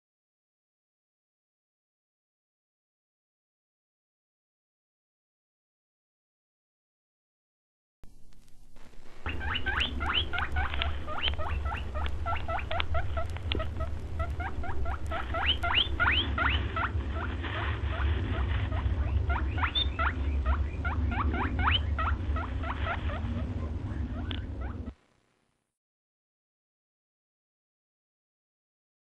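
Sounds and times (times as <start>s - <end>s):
steady low hum: 8.0s - 25.6s
high rising chirps: 19.0s - 22.7s.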